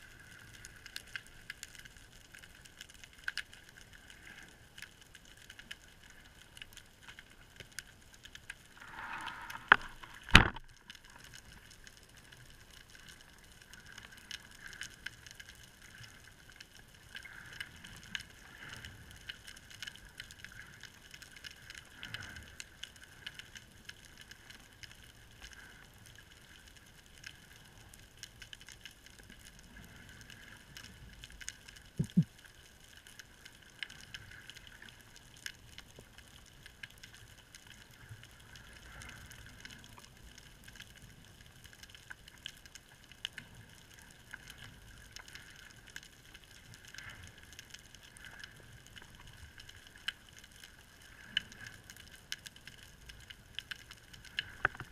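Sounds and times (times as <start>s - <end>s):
small clicks and crackles: 0.0s - 54.9s
underwater hiss: 8.8s - 10.2s.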